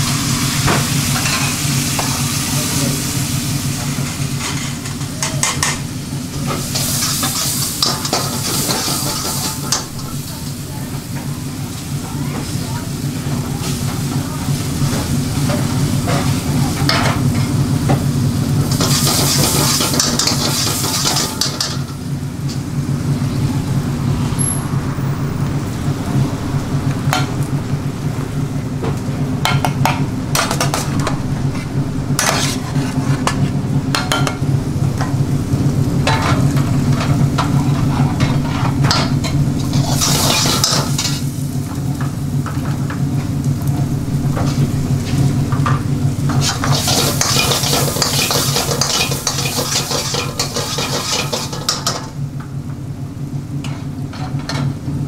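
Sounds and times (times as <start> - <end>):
food sizzling in a wok: 0.0 - 52.3
steady low drone: 22.0 - 39.9
metal ladle scraping a wok: 31.5 - 33.5, 39.6 - 41.3, 46.3 - 52.0.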